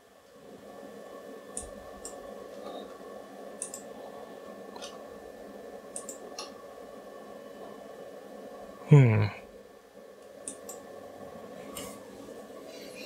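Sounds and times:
steady low hum: 0:00.0 - 0:13.0
computer mouse clicking: 0:01.5 - 0:02.8, 0:03.6 - 0:03.9, 0:05.9 - 0:06.6, 0:10.4 - 0:10.8.

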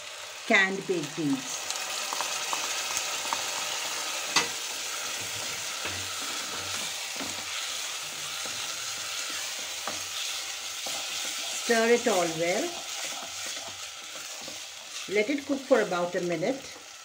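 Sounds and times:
food sizzling in a pot: 0:00.0 - 0:17.0
spoon stirring: 0:05.1 - 0:15.2.

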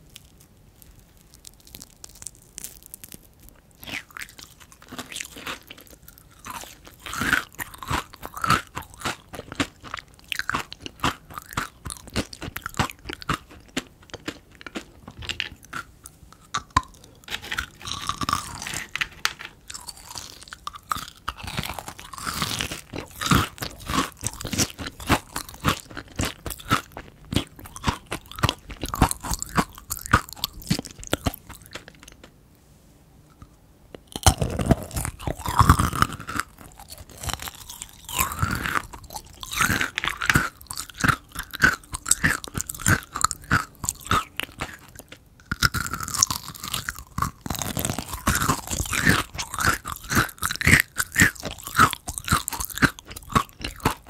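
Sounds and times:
crunching candy: 0:00.0 - 0:32.3, 0:33.4 - 0:54.0
wet chewing: 0:19.7 - 0:32.3, 0:34.0 - 0:54.0.

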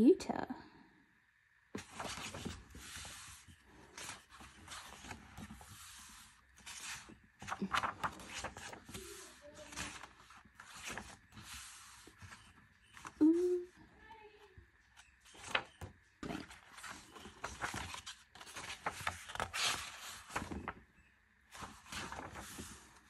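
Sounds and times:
paper pages turning: 0:01.8 - 0:13.3, 0:15.0 - 0:20.8, 0:21.5 - 0:23.0
person humming: 0:13.2 - 0:13.8.

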